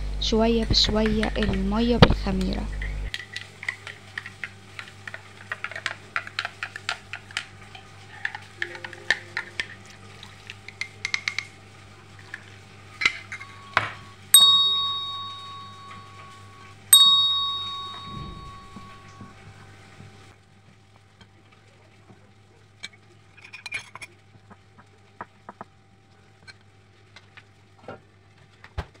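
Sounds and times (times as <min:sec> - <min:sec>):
spoon clinking on glass: 0:13.0 - 0:19.4
bell-like dings: 0:13.3 - 0:19.5.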